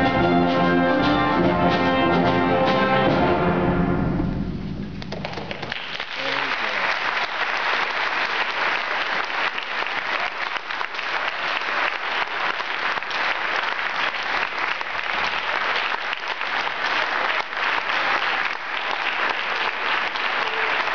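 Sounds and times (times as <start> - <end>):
audience applauding: 5.0 - 20.9.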